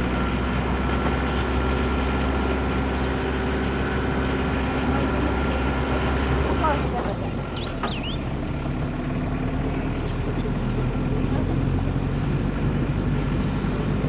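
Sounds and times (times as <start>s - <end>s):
vehicle engine and road noise: 0.0s - 14.0s.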